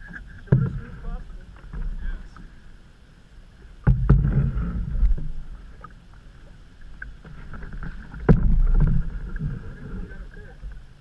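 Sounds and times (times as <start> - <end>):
paddle rushing water: 0.0 - 11.0
knock on canoe: 3.8 - 5.3, 8.2 - 9.4.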